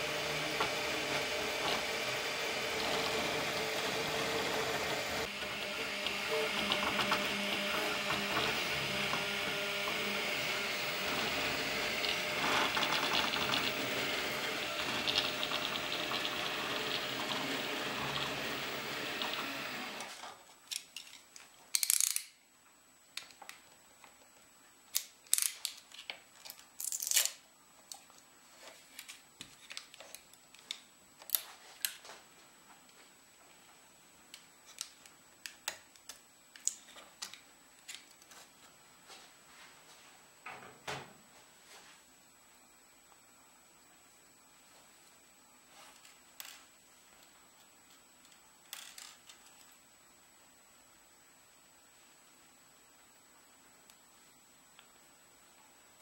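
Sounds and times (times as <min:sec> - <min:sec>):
printer running: 0:00.0 - 0:20.2.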